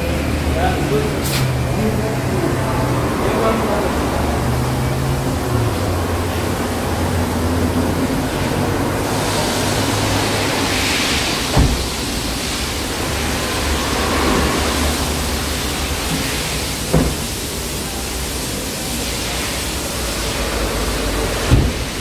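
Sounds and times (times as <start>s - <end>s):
compressed air hose hissing: 9.0s - 22.0s.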